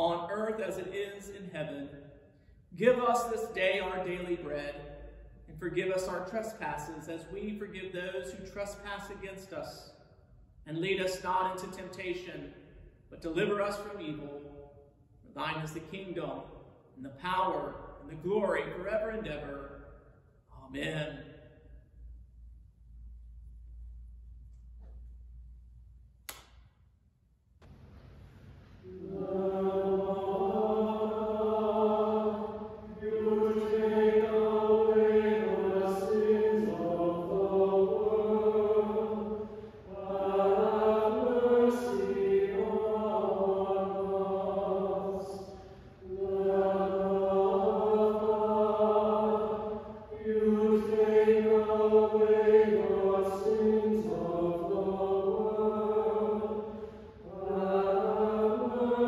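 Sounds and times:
choir chanting in harmony: 28.3s - 59.0s.

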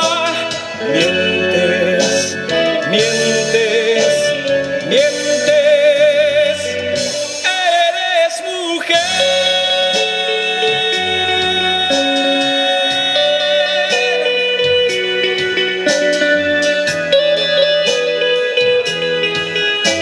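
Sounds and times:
man singing: 0.0s - 15.0s
electric guitar: 0.0s - 20.0s
live band playing: 0.0s - 20.0s.

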